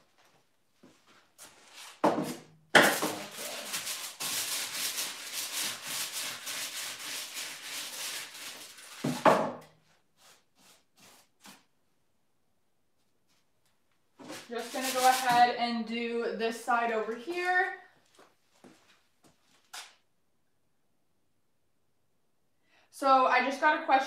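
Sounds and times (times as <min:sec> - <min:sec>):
paint roller rubbing in tray: 0:03.1 - 0:09.2, 0:14.3 - 0:15.5.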